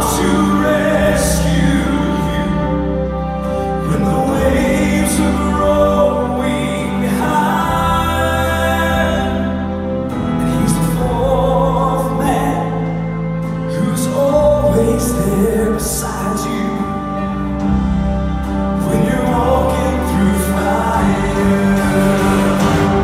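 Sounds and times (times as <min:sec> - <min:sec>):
man singing gospel: 0:00.0 - 0:17.6, 0:18.7 - 0:23.0
piano and band accompaniment: 0:00.0 - 0:23.0.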